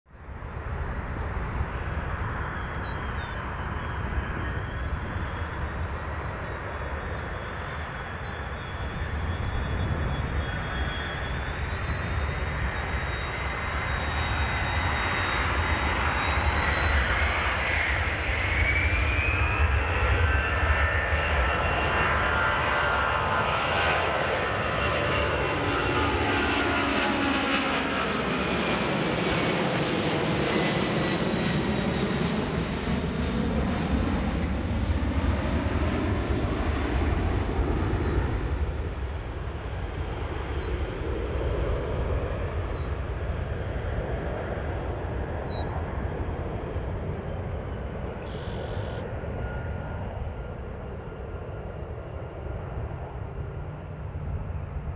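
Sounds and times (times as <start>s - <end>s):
jet aircraft flyby: 0.2s - 54.9s.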